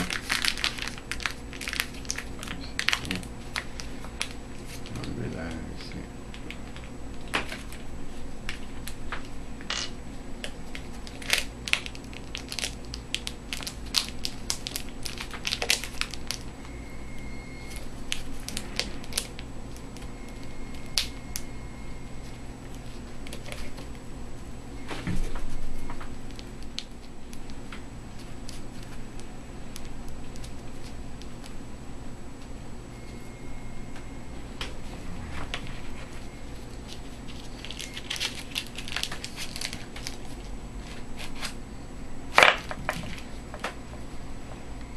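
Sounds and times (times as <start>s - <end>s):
metal tube crinkling: 0.0s - 5.1s, 9.7s - 16.5s, 36.0s - 41.6s
steady low hum: 0.0s - 44.9s.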